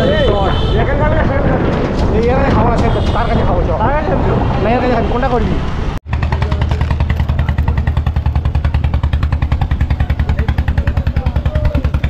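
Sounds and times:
boat engine running: 6.1 - 12.0.

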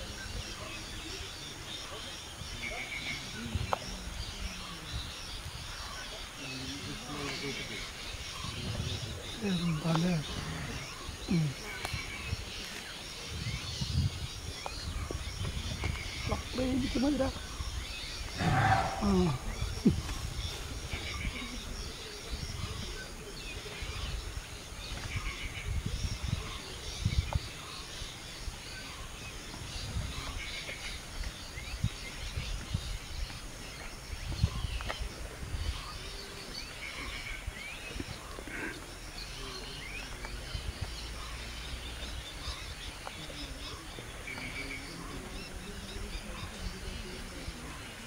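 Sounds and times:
birds chirping: 0.0 - 48.0
low rumbling: 17.4 - 21.2.

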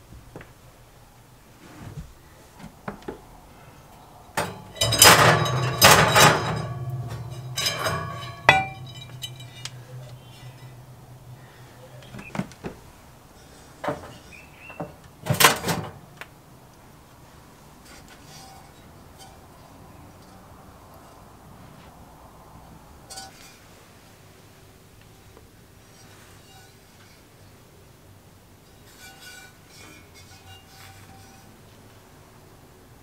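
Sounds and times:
metal clink ringing: 4.4 - 10.9
cast iron pot and lid clanking: 4.4 - 12.4.

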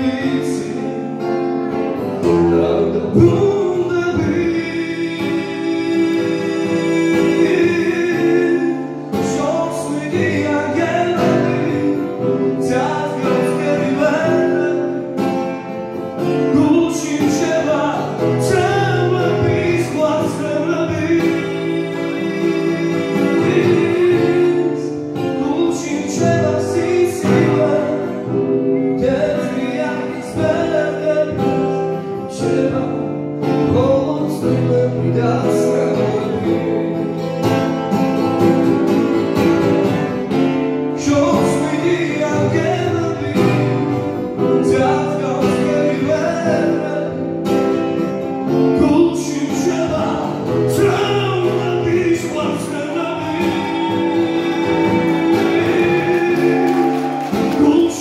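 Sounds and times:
man singing into microphone: 0.0 - 1.4, 2.2 - 15.4, 16.2 - 37.1, 40.9 - 47.4, 48.7 - 58.0.

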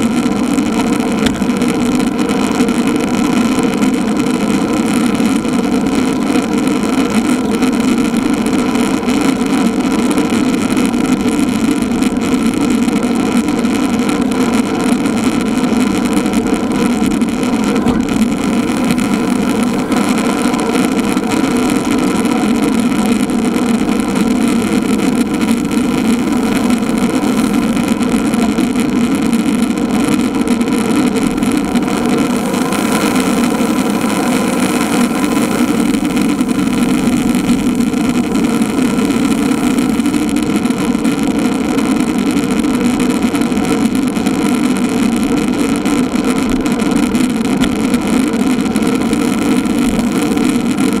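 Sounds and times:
wind and road noise drone: 0.0 - 51.0.

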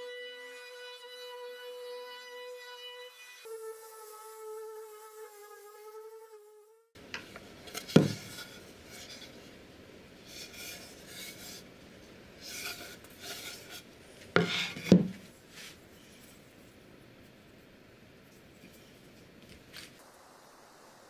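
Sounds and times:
wood sliding on wood: 12.4 - 15.8.

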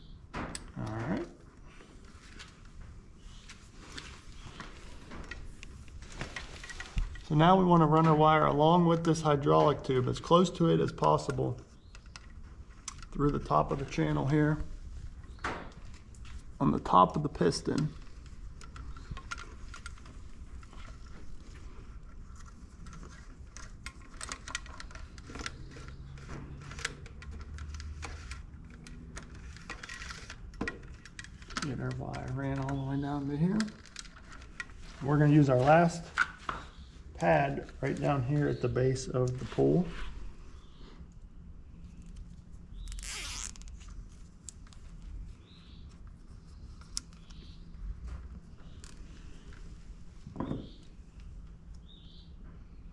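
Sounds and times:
hands handling wire clicking: 10.4 - 38.2, 45.9 - 49.7
zip tie rasping zip: 42.9 - 43.7.

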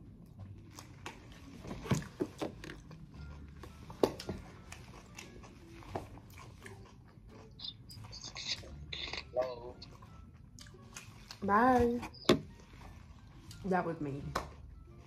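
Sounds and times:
person chewing food: 0.0 - 11.4
wet mouth clicks: 7.4 - 9.9.

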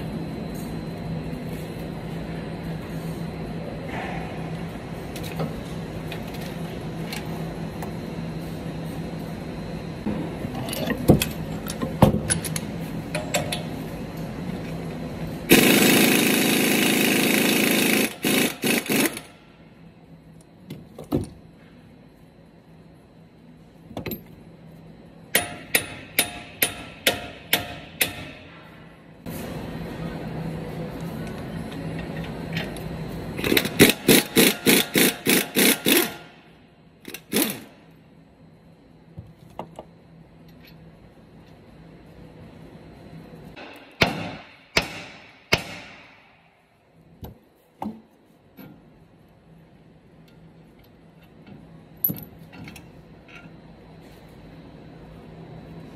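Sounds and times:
pneumatic air hammer bursts: 15.5 - 19.3, 33.4 - 36.3, 37.1 - 37.7
impact wrench running: 15.5 - 19.4, 33.4 - 36.4, 37.0 - 37.7.

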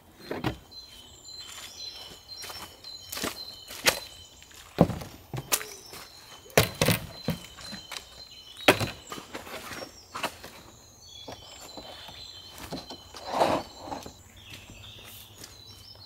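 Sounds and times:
footsteps in dry leaf litter: 0.7 - 6.5, 14.4 - 16.0
wooden panels knocking and thudding: 8.7 - 9.3.

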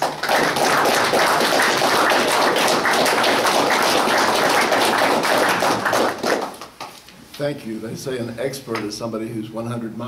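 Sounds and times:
audience clapping: 0.0 - 7.0.

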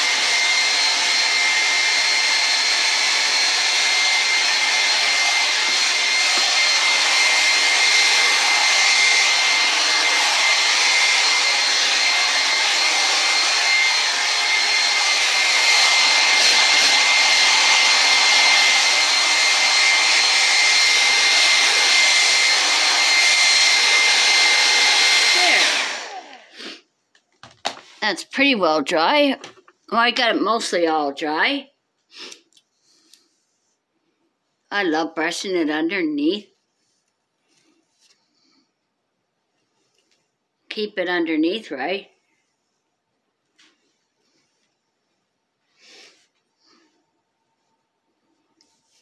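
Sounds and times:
hair dryer blowing: 0.0 - 26.9, 45.7 - 46.9.

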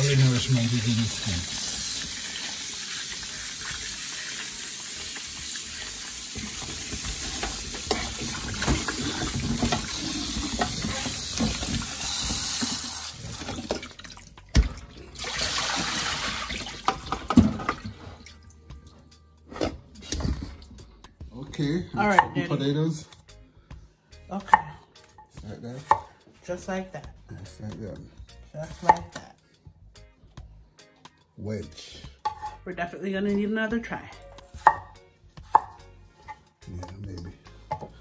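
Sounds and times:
tap water splashing into steel bowl: 13.4 - 18.4.

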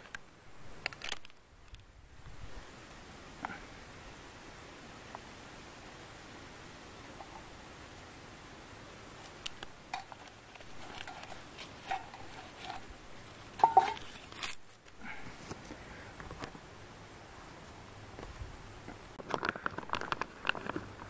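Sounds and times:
light rustling: 9.2 - 16.6
metal cup clinking on stove: 9.9 - 10.3, 13.6 - 14.1.

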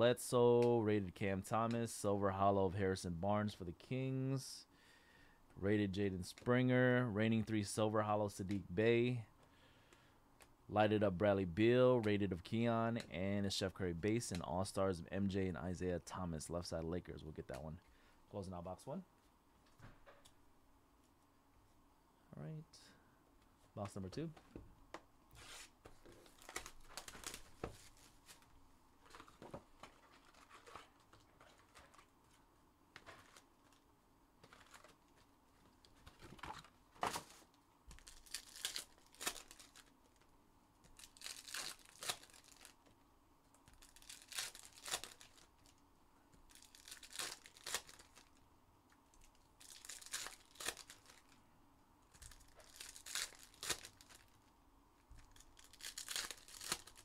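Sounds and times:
foil packs tearing and crinkling: 26.3 - 27.5, 38.0 - 39.9, 41.0 - 42.8, 43.7 - 45.7, 46.5 - 48.4, 49.6 - 51.4, 52.2 - 54.4, 55.3 - 57.0.

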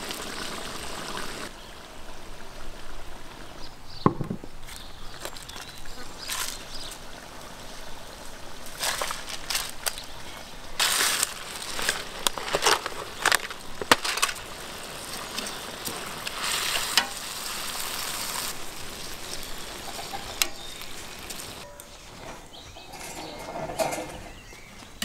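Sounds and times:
onions sizzling: 0.0 - 1.5, 5.8 - 21.6
crackles and pops: 10.8 - 21.6.

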